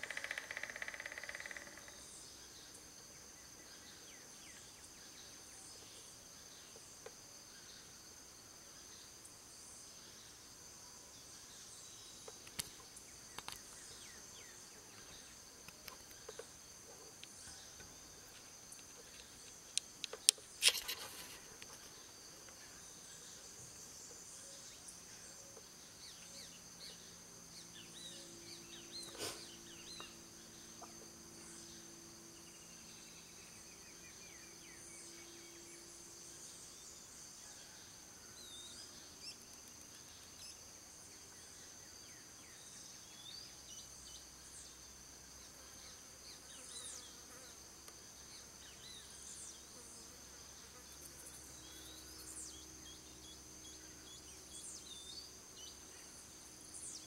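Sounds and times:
high-pitched insect drone: 0.0s - 2.2s.

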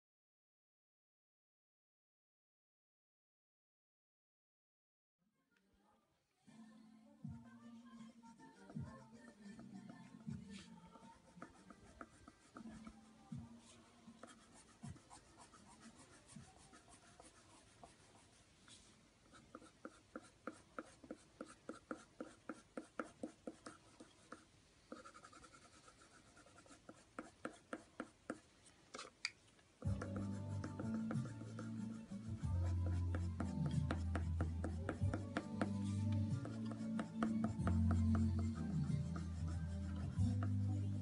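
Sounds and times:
pencil scratching on paper: 8.3s - 13.0s, 13.6s - 28.4s, 29.8s - 41.0s.

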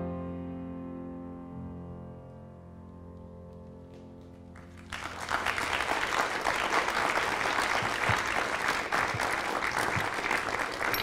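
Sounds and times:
audience applause: 4.6s - 11.0s.

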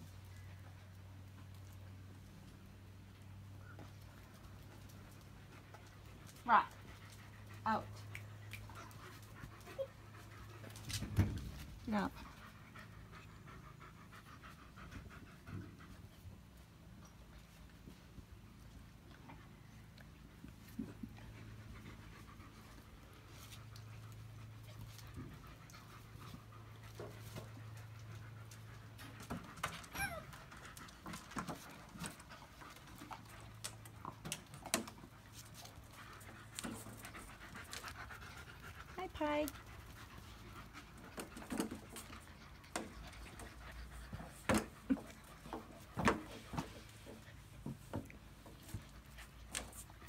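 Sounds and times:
dog panting: 11.8s - 16.7s, 19.3s - 50.0s.

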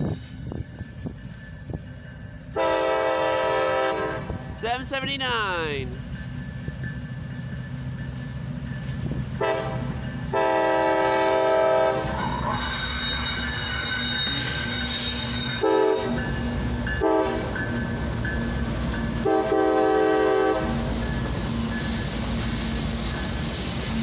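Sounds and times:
freight locomotives rumbling: 0.0s - 24.0s
crossing bell ringing: 0.5s - 2.6s, 4.6s - 10.8s, 12.5s - 19.3s, 20.0s - 22.4s
locomotive horn blasts: 2.5s - 4.5s, 9.4s - 16.2s, 17.0s - 17.6s, 19.2s - 20.8s.

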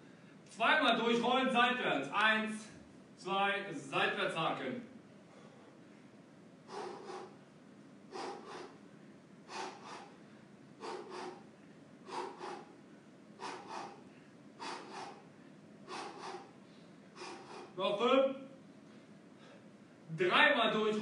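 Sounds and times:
man forcefully exhaling: 6.7s - 7.4s, 8.1s - 8.8s, 9.5s - 17.8s.

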